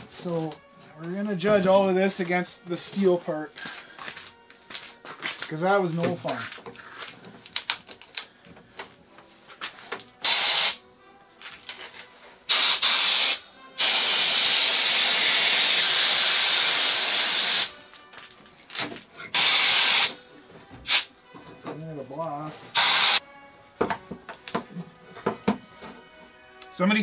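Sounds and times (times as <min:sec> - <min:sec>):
compressed air blow gun hissing: 0:10.2 - 0:10.8, 0:12.5 - 0:17.8, 0:19.3 - 0:20.2, 0:20.8 - 0:21.1, 0:22.7 - 0:23.2.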